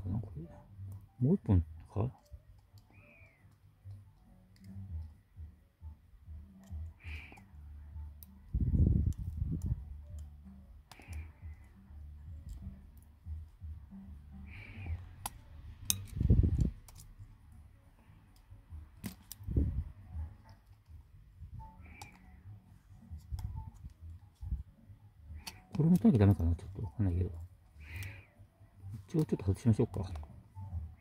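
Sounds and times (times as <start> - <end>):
tweezers clicking on small parts: 2.1 - 5.6, 6.3 - 21.0, 21.7 - 22.4, 23.1 - 24.6, 25.3 - 28.3.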